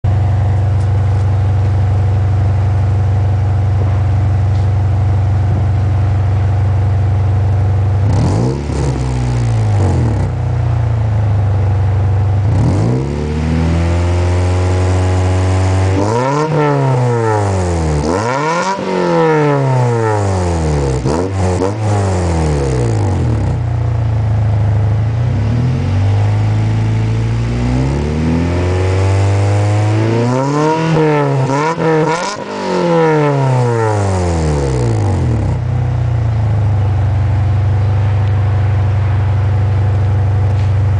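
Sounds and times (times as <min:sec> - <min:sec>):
car engine idling and revving: 0:00.0 - 0:40.9.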